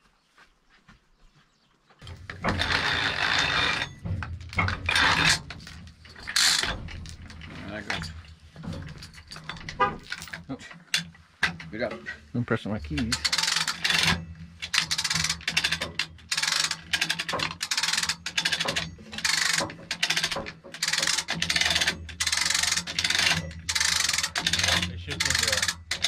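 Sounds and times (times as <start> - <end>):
ratchet pawl clicks: 2.0 - 3.9, 12.9 - 26.0.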